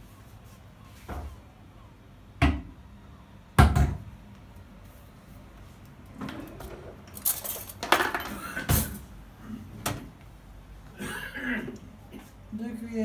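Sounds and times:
utensils clattering in bowl: 7.1 - 9.0.

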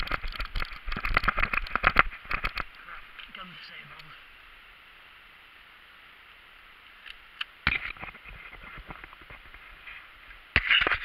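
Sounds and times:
sharp clicks and knocks: 0.0 - 3.3.

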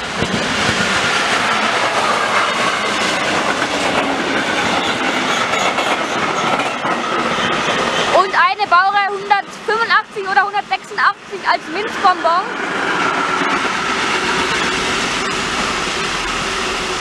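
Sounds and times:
train wheels clattering over rails: 0.0 - 9.3.

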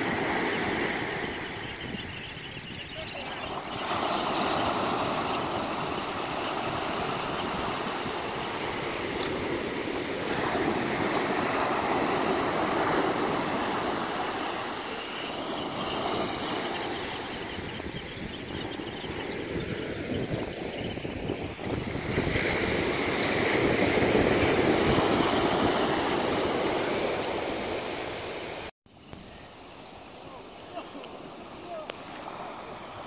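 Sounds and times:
wind noise on microphone: 0.0 - 14.6, 15.2 - 29.4
surf breaking on beach: 3.0 - 18.2, 21.4 - 28.7, 29.9 - 33.0.

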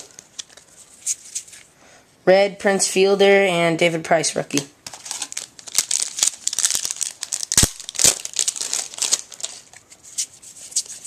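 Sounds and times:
foil wrapper crinkling and tearing: 4.9 - 9.9.

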